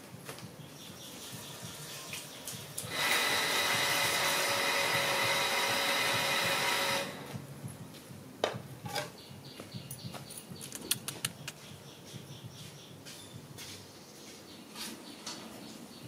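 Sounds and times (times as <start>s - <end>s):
small machine whirring: 2.8s - 7.4s.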